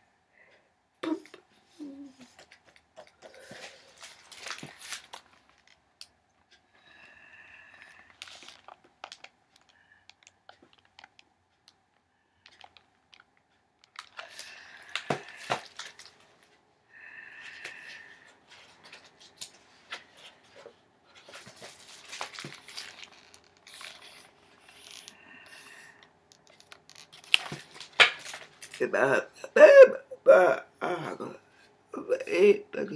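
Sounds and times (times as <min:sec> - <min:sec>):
book pages turning: 0:02.2 - 0:05.8, 0:08.2 - 0:11.7, 0:13.9 - 0:16.3, 0:18.5 - 0:28.8
clicks and crinkles: 0:02.2 - 0:06.6, 0:07.9 - 0:16.6, 0:17.6 - 0:28.8.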